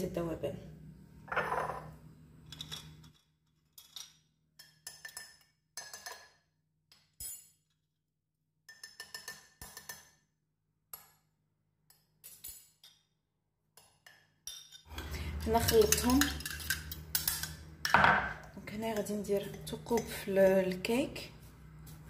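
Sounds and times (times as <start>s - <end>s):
metal spoon clinking against mug: 2.5s - 6.3s, 13.8s - 18.0s.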